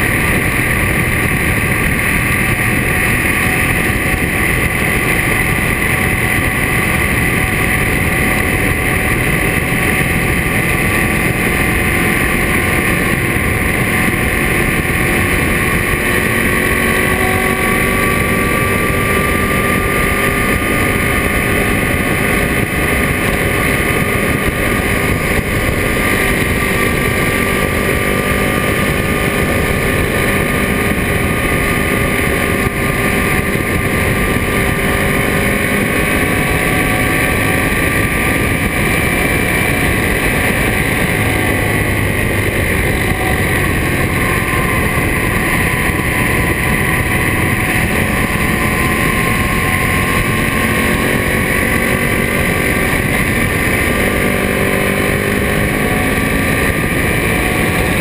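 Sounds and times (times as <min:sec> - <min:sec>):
motorcycle engine cruising: 0:00.0 - 0:58.0
wind noise: 0:00.0 - 0:58.0.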